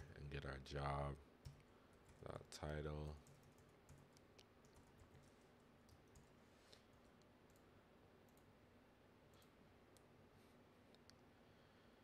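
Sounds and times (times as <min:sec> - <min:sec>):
faint keyboard and mouse clicks: 0:03.1 - 0:07.7.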